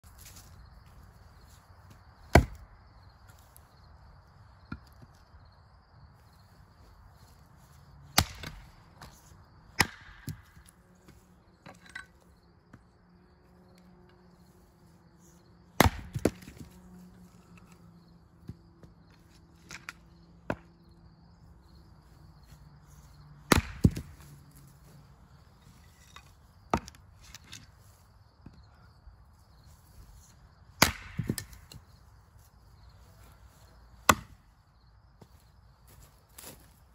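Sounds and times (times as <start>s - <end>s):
axe chopping wood: 2.3s - 2.6s, 8.1s - 10.7s, 15.8s - 16.7s, 23.4s - 24.3s, 30.8s - 31.8s, 34.0s - 34.4s.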